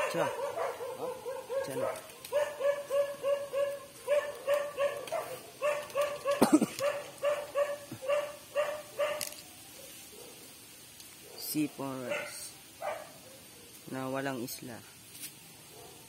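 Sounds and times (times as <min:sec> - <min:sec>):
animal yelping calls: 0:00.0 - 0:09.4.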